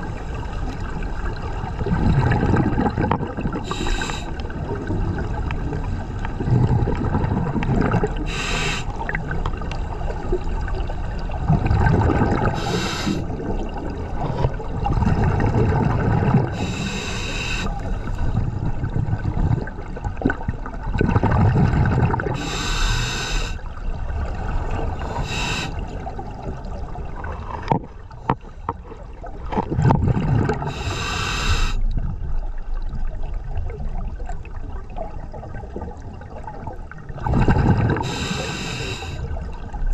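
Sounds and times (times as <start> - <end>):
exhaled air bubbling: 0.0 - 39.9
regulator hissing inhales: 3.6 - 4.4, 8.3 - 8.9, 12.6 - 13.3, 16.6 - 18.2, 22.4 - 23.6, 25.2 - 25.8, 30.7 - 31.8, 38.0 - 39.3.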